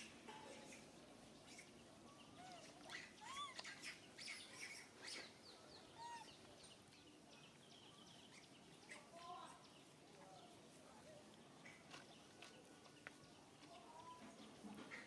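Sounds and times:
squeaky animal calls: 0:02.4 - 0:04.9
animal chirps: 0:02.4 - 0:05.3.

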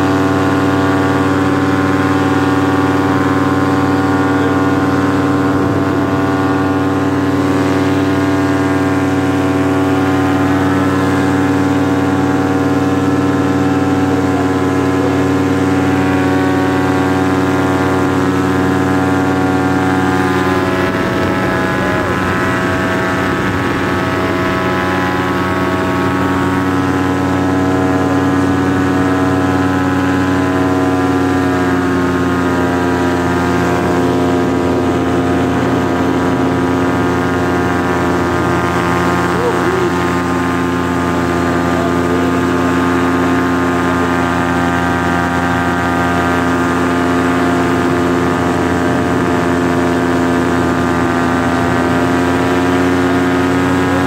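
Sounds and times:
paramotor engine droning: 0:00.0 - 0:54.0
wind buffeting microphone: 0:04.7 - 0:27.7.

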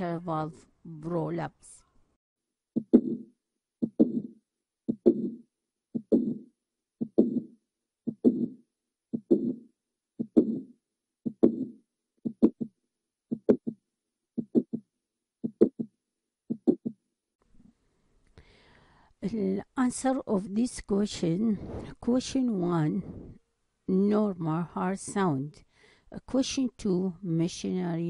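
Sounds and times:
heartbeat clicks and murmur: 0:02.8 - 0:13.8, 0:14.4 - 0:17.0.

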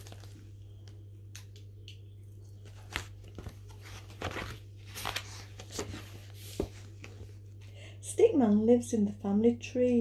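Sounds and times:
paper pages rustling: 0:00.0 - 0:01.0, 0:02.6 - 0:07.4
steady low hum: 0:00.0 - 0:10.0.

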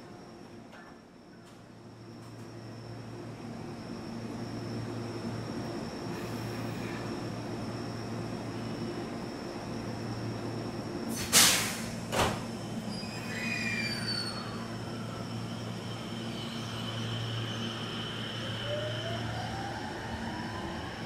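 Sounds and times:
loud hissing burst of air: 0:11.1 - 0:12.1
electric train humming: 0:11.8 - 0:21.0.

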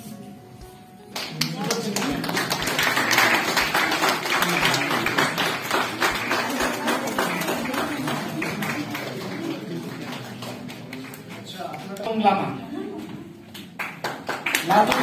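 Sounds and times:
audience applause: 0:01.2 - 0:12.0, 0:13.4 - 0:15.0.

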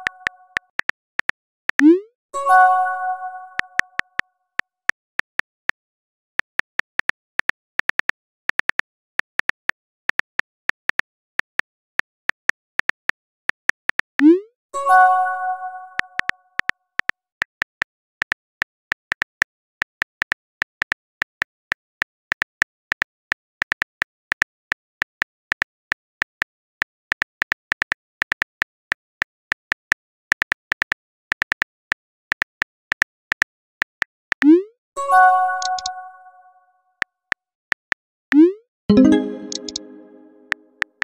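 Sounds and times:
phone keyboard clicks: 0:35.6 - 0:36.0, 0:38.9 - 0:39.9
multi-note chime: 0:38.9 - 0:40.6.

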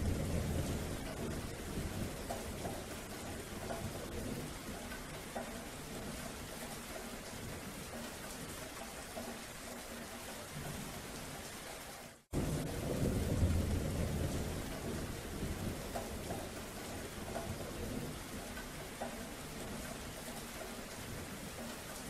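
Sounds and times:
thunder rumbling: 0:00.0 - 0:04.8, 0:12.3 - 0:18.8
steady rain: 0:00.0 - 0:22.0.

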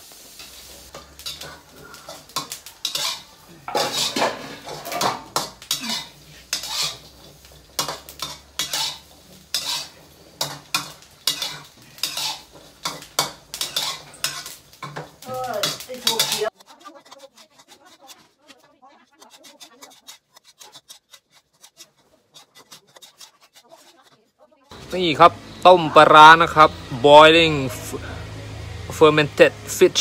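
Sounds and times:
faint sizzle: 0:00.0 - 0:20.3
metal spatula scraping wok: 0:00.0 - 0:28.0.

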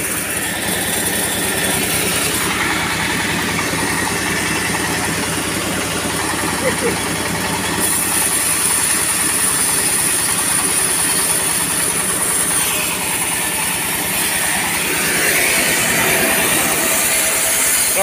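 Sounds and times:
diesel engine running: 0:00.0 - 0:18.0
steady high whine: 0:00.0 - 0:18.0.

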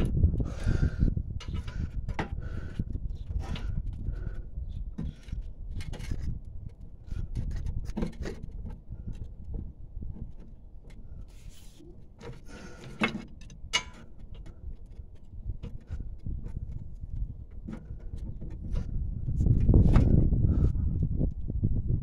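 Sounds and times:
metal clanks: 0:12.2 - 0:14.6.

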